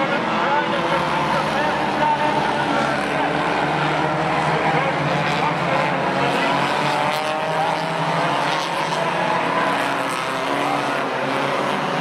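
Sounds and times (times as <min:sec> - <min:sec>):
racing car engines: 0:00.0 - 0:12.0.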